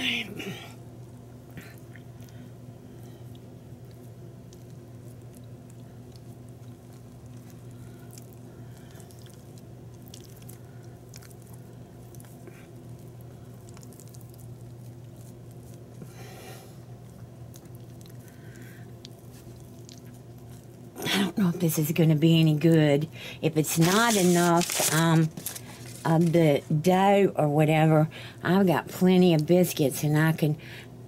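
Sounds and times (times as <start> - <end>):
steady low hum: 0.0 - 31.0
dough squishing: 1.6 - 22.8, 23.6 - 27.0.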